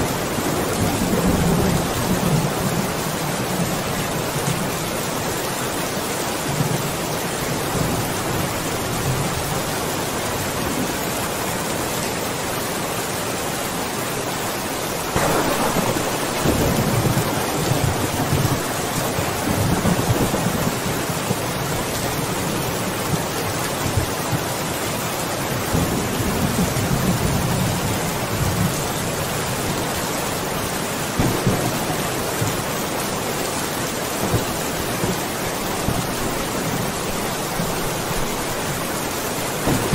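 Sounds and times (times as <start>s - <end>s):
thunder rumbling: 0.0s - 4.7s, 15.1s - 24.4s, 31.2s - 39.9s
steady rain falling: 0.0s - 39.9s.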